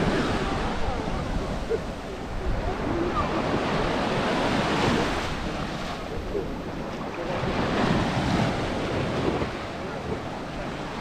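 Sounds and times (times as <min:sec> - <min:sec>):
small waves washing on sand: 0:00.0 - 0:11.0
wind buffeting microphone: 0:00.0 - 0:11.0.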